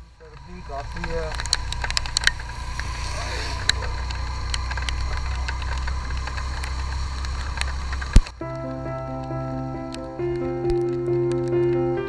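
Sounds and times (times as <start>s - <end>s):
motorcycle engine and wind rumble: 0.0s - 12.0s
raindrops ticking on camera: 3.7s - 11.9s.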